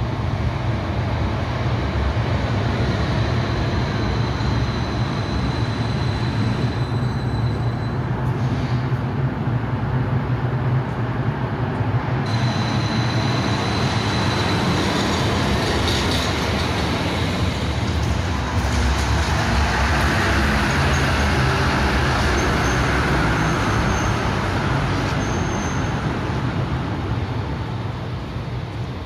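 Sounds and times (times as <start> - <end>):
tram rumbling on rails: 0.0 - 29.0
tram wheel squeals: 2.6 - 9.0, 12.3 - 28.2.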